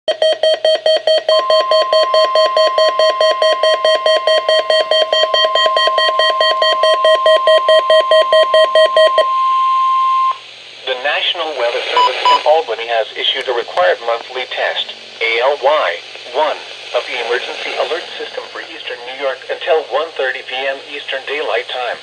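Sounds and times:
steady alarm tone: 0.2 - 10.4.

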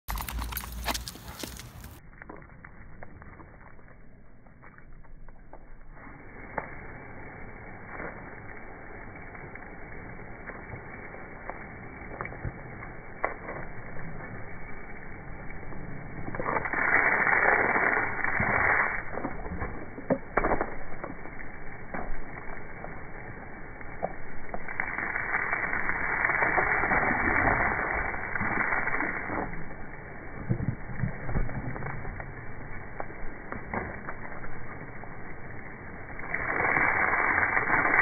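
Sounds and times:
garden hose spray hissing: 5.8 - 30.4, 34.5 - 38.0.

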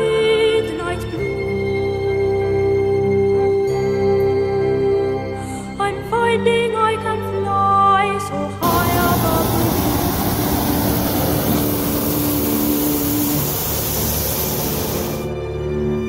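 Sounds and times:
propane burner blast: 8.6 - 15.3.

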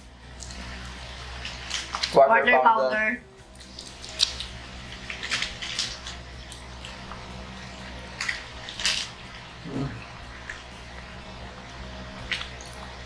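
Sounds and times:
wet chewing and lip-smacking: 3.4 - 7.2, 12.2 - 13.0.

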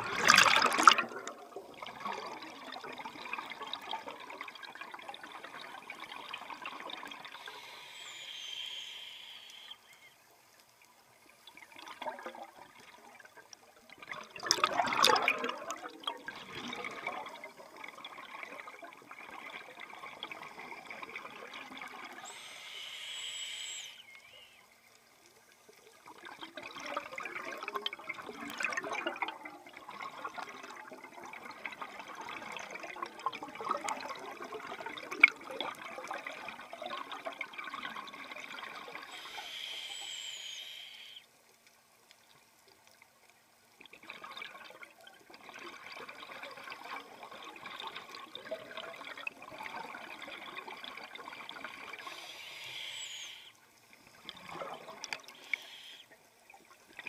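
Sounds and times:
regulator valve hiss: 7.4 - 9.8, 22.2 - 24.4, 39.1 - 41.2, 52.0 - 53.6, 55.3 - 56.2.

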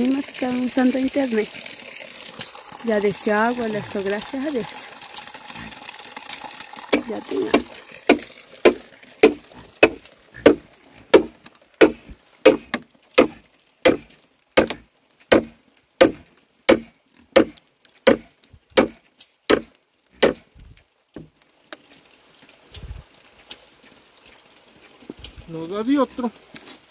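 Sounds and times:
wood being chopped: 7.0 - 20.4.

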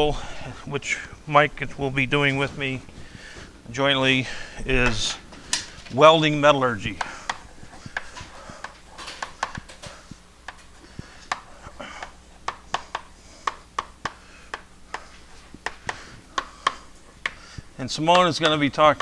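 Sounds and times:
low room hum: 0.0 - 19.0
chalk tapping on blackboard: 12.5 - 17.4.

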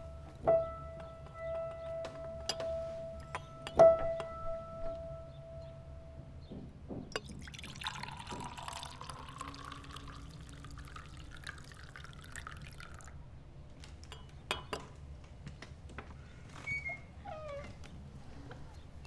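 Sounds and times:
tea pouring into glass cup: 7.2 - 13.2.

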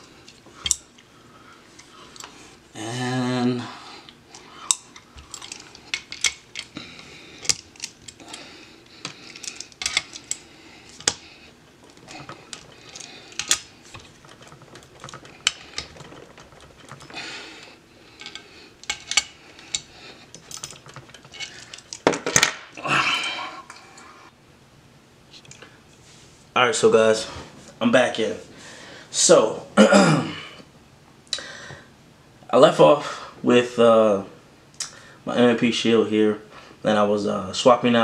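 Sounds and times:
metal clicks and clinks: 4.7 - 6.8, 7.4 - 8.4, 9.0 - 11.2, 11.8 - 17.2, 18.2 - 22.5
metal tool clatter: 4.7 - 6.8, 7.4 - 11.2, 11.8 - 22.6.

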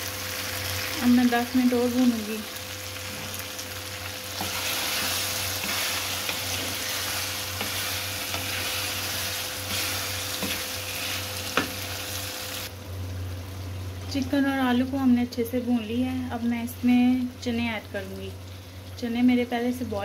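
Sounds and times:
food sizzling in a pot: 0.0 - 20.0
spatula scraping and knocking pot: 4.4 - 11.8.

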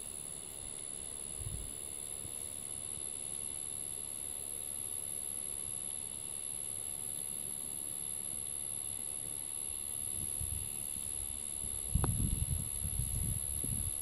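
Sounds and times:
high-pitched insect drone: 0.0 - 14.0
wind rumble on microphone: 1.4 - 1.7, 10.2 - 10.7, 11.7 - 14.0.

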